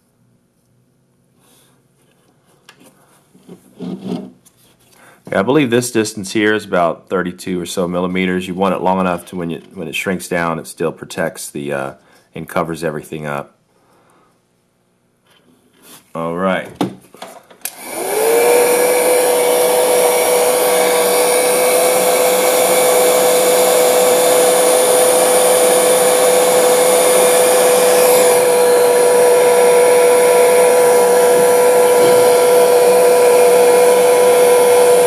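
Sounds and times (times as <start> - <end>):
heat gun blowing: 17.6 - 35.0.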